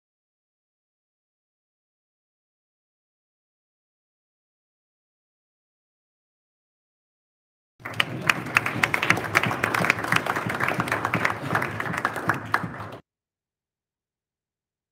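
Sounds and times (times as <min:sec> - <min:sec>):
people applauding: 0:07.8 - 0:13.0.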